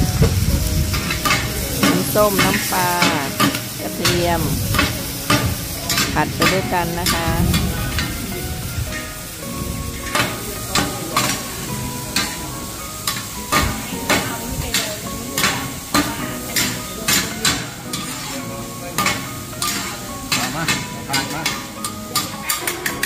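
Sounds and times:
oil sizzling: 0.0s - 23.0s
metal spatulas scraping a pan: 0.9s - 8.2s, 13.0s - 23.0s.

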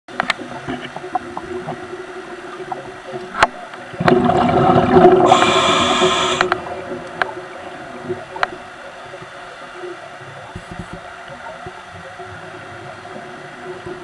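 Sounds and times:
small underwater clicks and crackles: 0.1s - 14.0s
gurgling rumble of bubbles: 0.4s - 14.0s
hiss: 5.2s - 6.6s.

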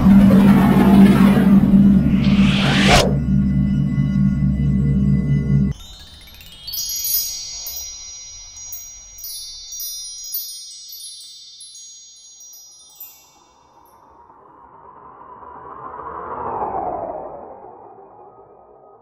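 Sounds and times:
wind chimes tinkling: 5.6s - 14.4s.

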